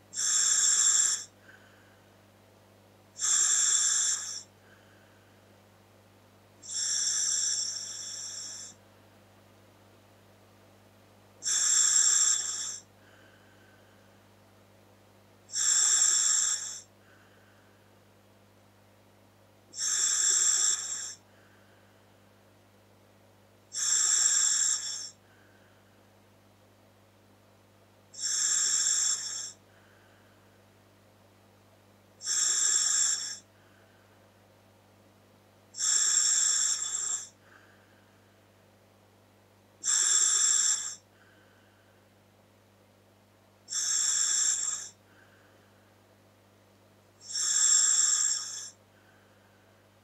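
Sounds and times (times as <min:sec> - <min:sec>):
faint steady hum: 0:00.0 - 0:50.0
hissing breaths through regulator: 0:00.2 - 0:01.3, 0:03.2 - 0:04.5, 0:06.6 - 0:08.8, 0:19.8 - 0:21.2
soft breath out: 0:01.2 - 0:02.2, 0:04.4 - 0:05.5, 0:12.8 - 0:14.2, 0:16.8 - 0:17.9, 0:21.1 - 0:22.1, 0:25.1 - 0:26.0, 0:29.4 - 0:30.6, 0:37.3 - 0:38.4, 0:41.0 - 0:42.1, 0:44.9 - 0:46.0, 0:48.9 - 0:49.9.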